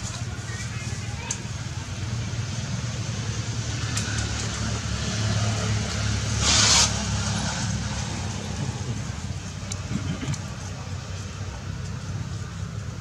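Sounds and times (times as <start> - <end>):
low engine-like hum: 0.0 - 13.0
loud hiss: 6.3 - 7.2.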